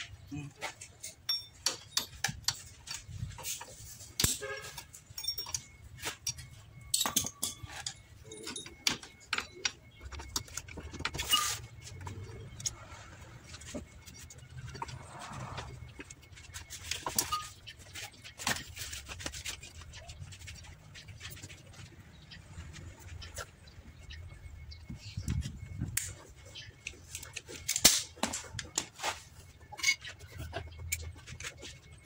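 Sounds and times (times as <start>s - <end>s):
metal brake parts clinking: 0.7s - 12.8s.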